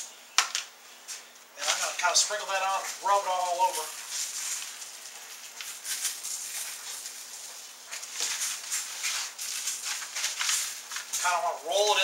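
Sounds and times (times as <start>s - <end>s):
paper rustling: 1.6s - 12.0s
hands rubbing seasoning into meat: 2.8s - 11.4s.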